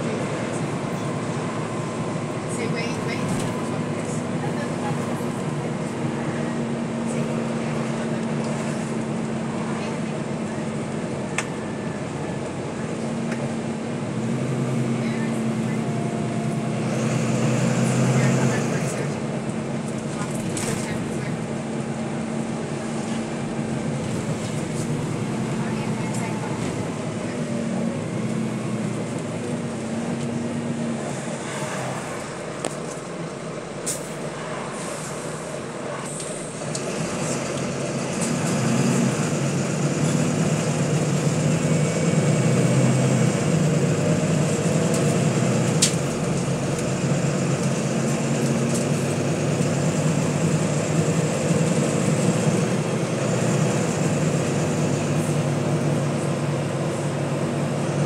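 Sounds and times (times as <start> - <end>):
bus engine droning: 0.0 - 58.0
road noise: 0.0 - 58.0.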